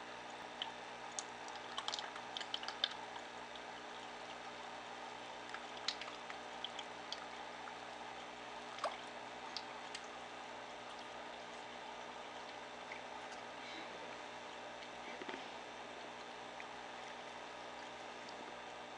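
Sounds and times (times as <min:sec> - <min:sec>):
aquarium filter water trickling: 0:00.0 - 0:18.9
fish popping at water surface: 0:00.6 - 0:03.1, 0:05.5 - 0:07.3.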